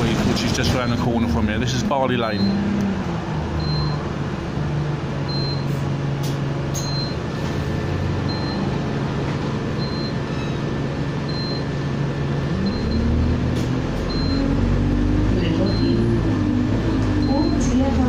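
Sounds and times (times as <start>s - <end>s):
bus engine idling: 0.0s - 18.0s.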